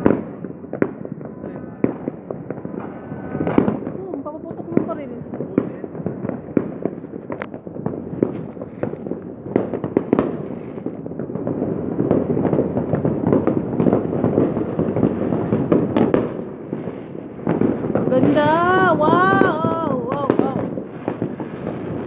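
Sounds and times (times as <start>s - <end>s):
fireworks bangs and crackles: 0.0s - 22.0s
sharp single firework reports: 0.0s - 22.0s.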